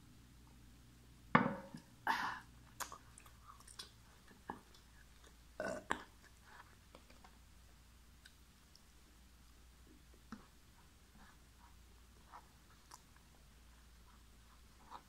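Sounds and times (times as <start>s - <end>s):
wet chewing and swallowing: 2.6s - 7.4s, 9.8s - 15.0s.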